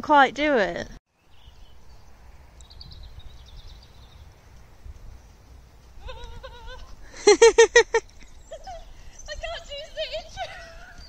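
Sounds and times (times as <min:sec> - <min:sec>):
muffled horse hoofbeats: 0:04.0 - 0:08.3.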